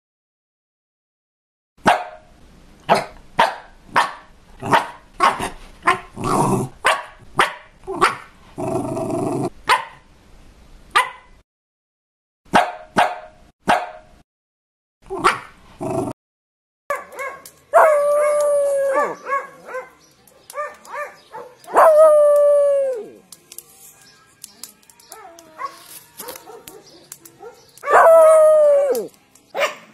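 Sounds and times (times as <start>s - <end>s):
dog barking: 1.8s - 2.3s, 2.9s - 6.1s, 6.8s - 8.3s, 9.6s - 10.0s, 10.9s - 11.4s, 12.5s - 14.1s, 15.1s - 15.6s, 16.9s - 22.0s, 25.1s - 28.4s, 29.6s - 29.9s
dog crying: 17.2s - 19.9s, 25.1s - 29.1s.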